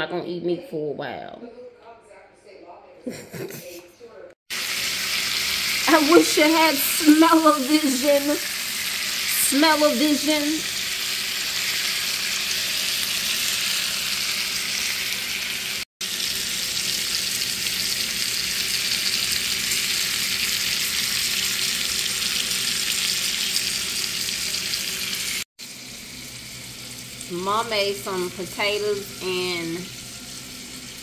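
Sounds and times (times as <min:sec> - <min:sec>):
steaks sizzling in a pan: 0:04.5 - 0:31.0.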